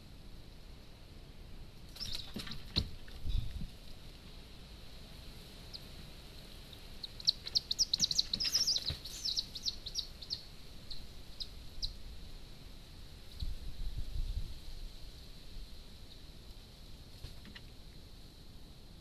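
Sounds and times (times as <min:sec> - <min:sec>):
bird squeaky calls: 0:02.0 - 0:02.4, 0:07.0 - 0:12.0.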